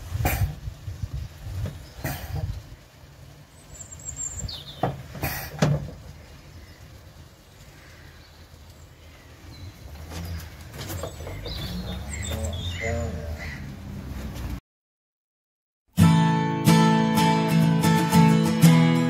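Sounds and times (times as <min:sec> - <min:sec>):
bird chirp: 0:03.5 - 0:05.1, 0:05.9 - 0:13.8
knocks and clunks on an engine: 0:04.6 - 0:06.2, 0:10.0 - 0:11.8.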